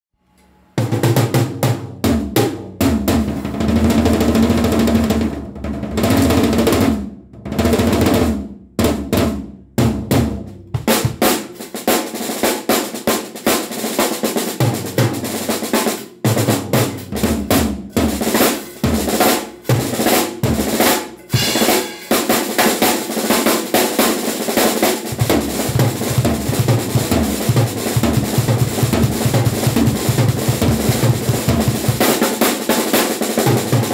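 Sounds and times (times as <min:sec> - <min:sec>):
drum kit fills: 0:00.8 - 0:33.9.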